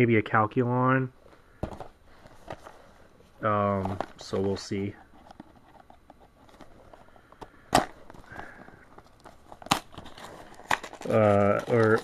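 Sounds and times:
cardboard rustling and ticking: 3.7s - 12.0s
cardboard snapping: 9.4s - 12.0s.

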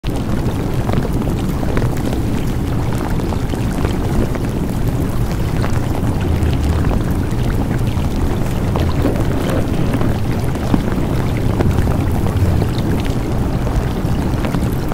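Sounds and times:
steady rushing noise: 3.5s - 14.9s.

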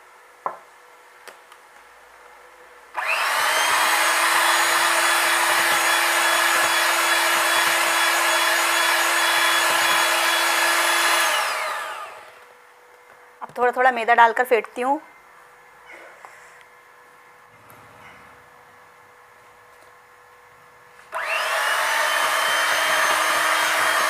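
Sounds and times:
electric hand mixer whining: 3.0s - 12.4s, 21.1s - 24.0s.

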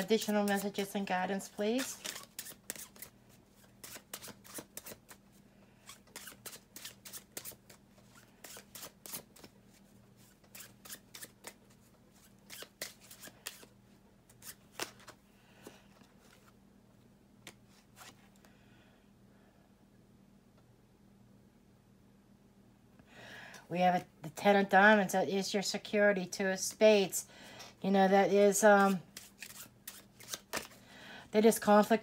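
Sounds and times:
playing cards shuffling: 0.0s - 5.2s, 10.2s - 13.7s, 14.3s - 15.2s, 28.8s - 30.8s
faint steady hum: 0.0s - 32.0s.

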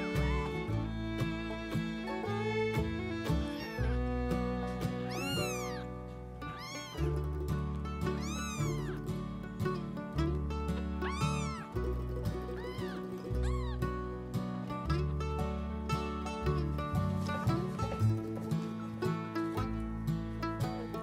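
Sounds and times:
kitten meowing: 3.6s - 3.9s, 5.1s - 5.9s, 6.5s - 7.1s, 8.2s - 9.0s, 11.0s - 11.8s, 12.5s - 13.9s.

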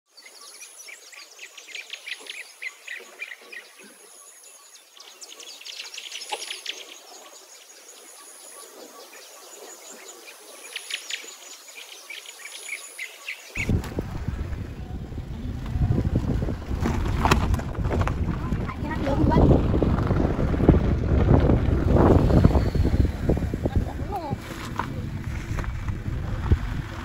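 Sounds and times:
birds chirping and twittering: 0.1s - 27.0s
low even rumble: 13.6s - 27.0s.

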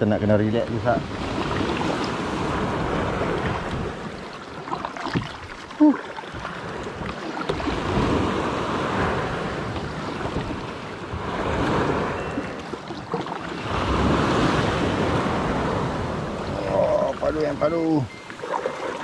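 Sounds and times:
sea waves washing in: 0.0s - 19.0s.

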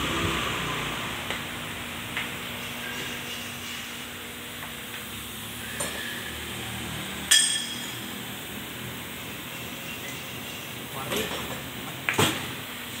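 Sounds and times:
workshop hum: 0.0s - 13.0s
metal clink: 7.3s - 8.0s.

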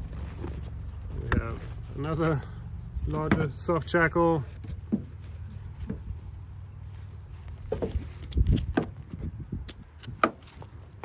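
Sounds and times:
gear knocks and rustles: 0.0s - 2.4s, 7.0s - 11.0s
dull thump: 7.6s - 9.0s.

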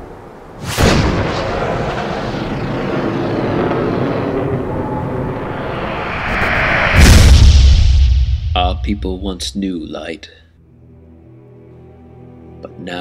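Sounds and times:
long dense rumble: 1.1s - 9.9s
loud impact: 4.4s - 9.5s.

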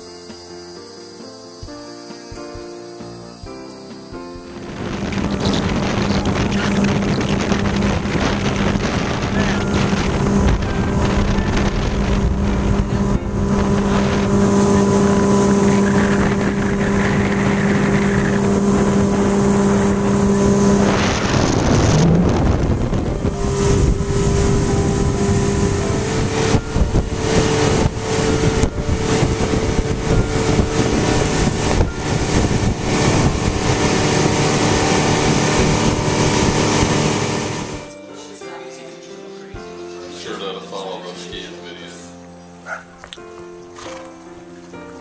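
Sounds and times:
motorboat engine: 0.0s - 38.0s
water rushing along hull: 3.3s - 38.0s
wind on microphone: 4.1s - 37.9s.

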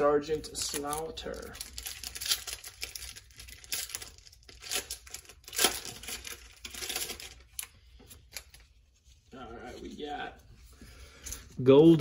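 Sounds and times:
wrapper tearing and crinkling: 0.4s - 7.7s.

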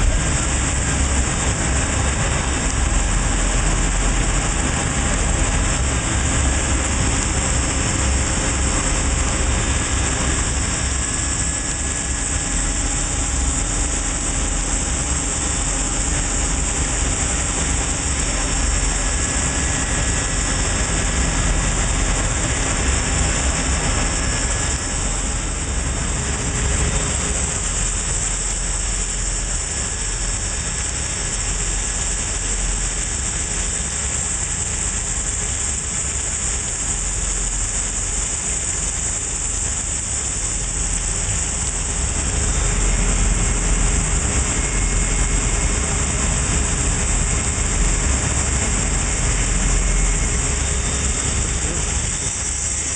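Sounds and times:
low machine hum: 0.0s - 52.9s
coolant spraying hiss: 50.4s - 52.9s.

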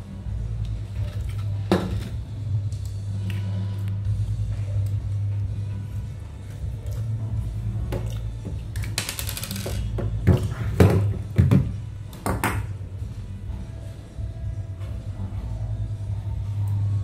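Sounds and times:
metal parts clinking and knocking: 8.7s - 10.1s.

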